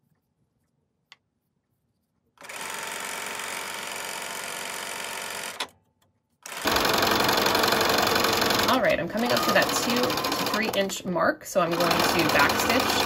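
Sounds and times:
sewing machine stitching: 6.4 - 13.0.

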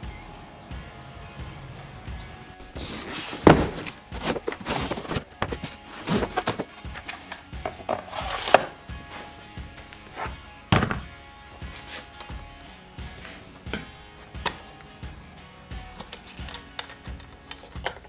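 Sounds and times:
background music: 0.0 - 18.0
cardboard rustling: 2.6 - 12.2
knocks and thuds: 2.8 - 6.7, 10.7 - 11.1.

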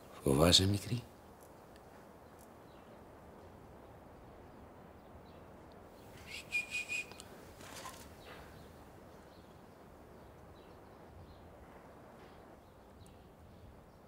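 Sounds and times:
short high whistle: 6.2 - 7.2.

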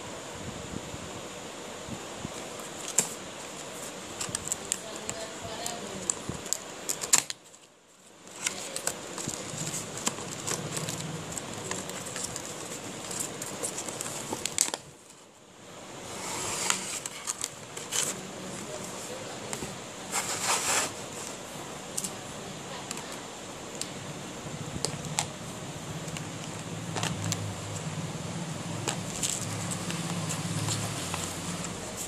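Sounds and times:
plastic packaging crinkling: 2.3 - 15.2, 28.7 - 32.0.

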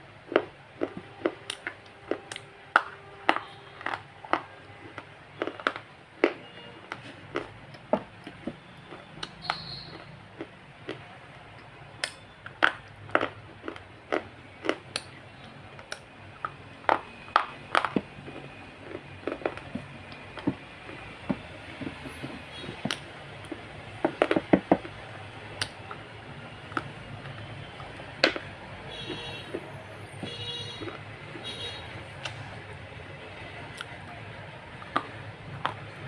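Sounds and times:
crisp crunching bites: 0.3 - 11.1, 12.0 - 15.2, 15.8 - 21.1
chewing: 0.3 - 25.0, 30.7 - 31.6, 33.7 - 36.0.

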